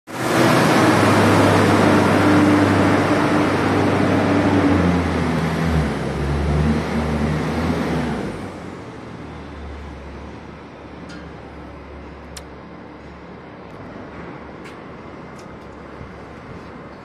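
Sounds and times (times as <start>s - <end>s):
loud rushing noise: 0.1s - 8.8s
engine running steadily: 0.1s - 17.0s.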